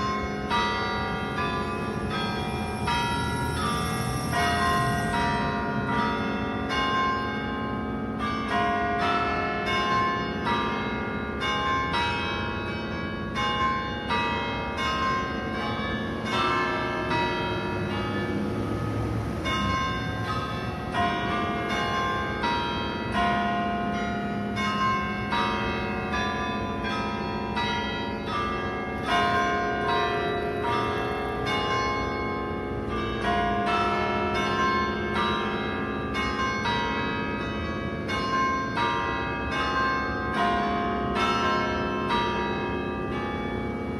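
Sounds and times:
church bells pealing: 0.0 - 43.9.

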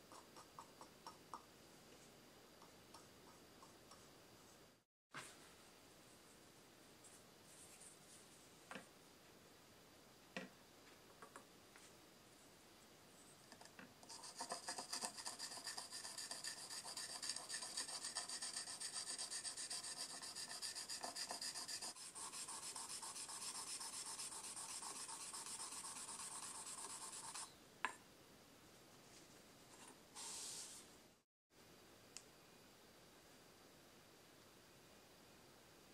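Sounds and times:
charcoal scraping on lacquer: 14.0 - 27.5
click: 32.1 - 32.3.

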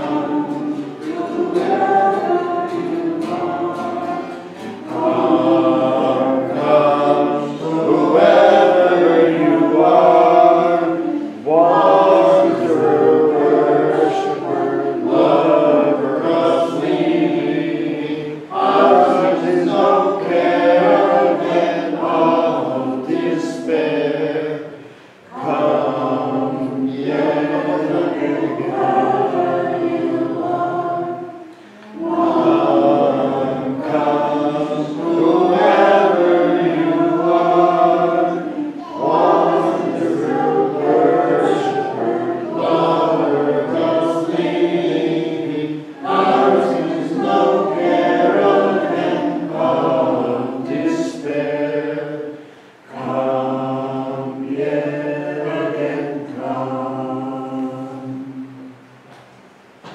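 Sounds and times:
group of voices singing: 0.0 - 59.9
singers breathing: 24.8 - 25.3, 52.4 - 52.9.

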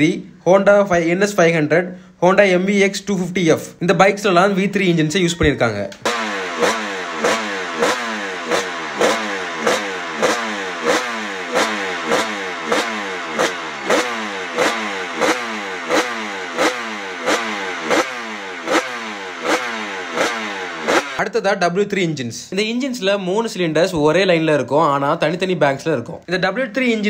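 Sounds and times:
racing engine revving: 6.0 - 21.3.

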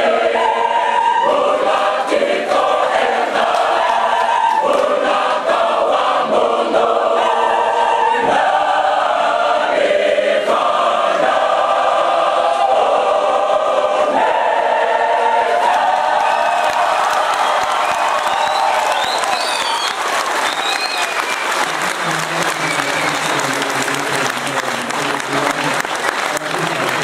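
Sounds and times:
church choir singing a hymn: 0.0 - 19.8.

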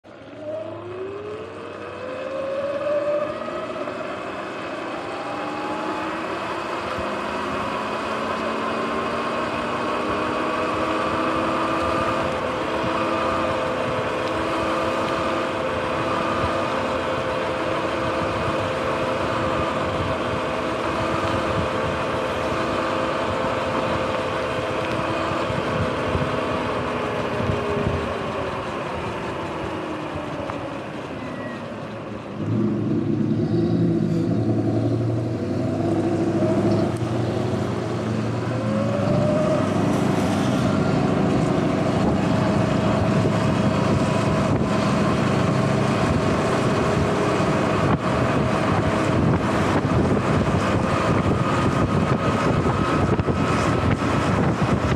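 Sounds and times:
tyres hissing on wet road: 1.4 - 54.9.

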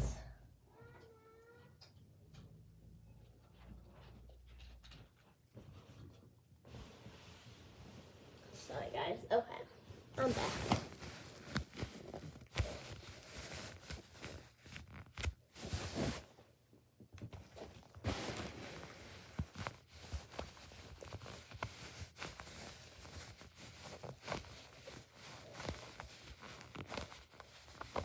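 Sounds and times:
foam toys rustling: 6.9 - 16.4, 17.3 - 28.0.

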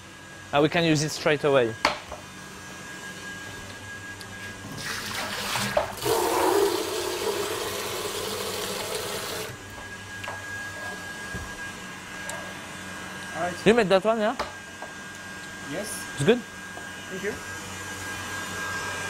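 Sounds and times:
water rushing from tap: 4.8 - 9.6.

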